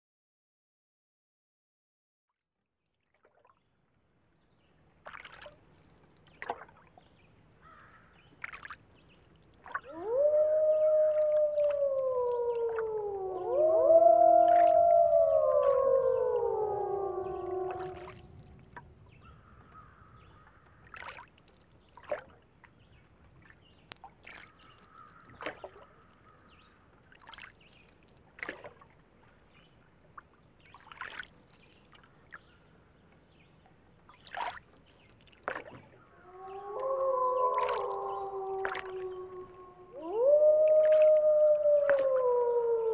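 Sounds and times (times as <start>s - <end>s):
wolves howling in chorus: 9.9s - 18.4s, 36.2s - 42.9s.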